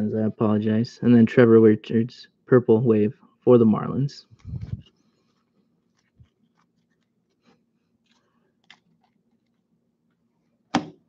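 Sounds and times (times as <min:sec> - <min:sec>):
trading cards clicking and rustling: 0:04.4 - 0:09.7.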